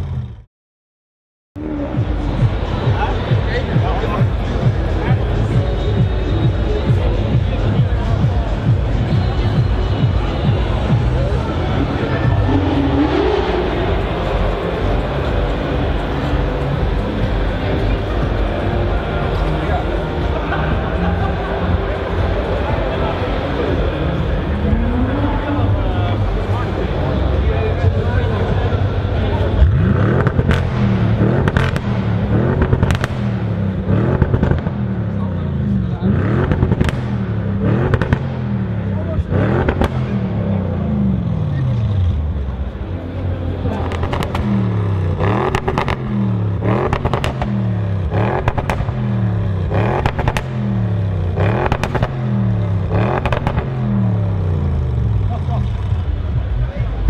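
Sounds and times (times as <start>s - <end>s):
car engine revving: 1.6s - 57.0s
exhaust pops and crackles: 30.2s - 34.9s, 36.4s - 38.4s, 39.2s - 40.3s, 43.8s - 44.6s, 46.8s - 54.0s.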